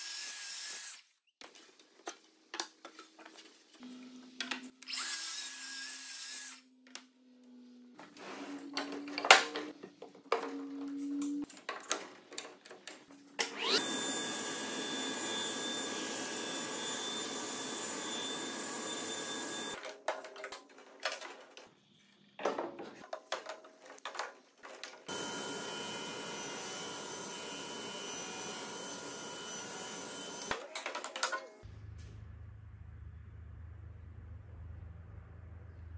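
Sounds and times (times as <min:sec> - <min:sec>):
table saw running: 0:13.4 - 0:19.8, 0:25.1 - 0:30.6
wood pieces knocking and clattering: 0:19.8 - 0:21.8, 0:22.4 - 0:25.1.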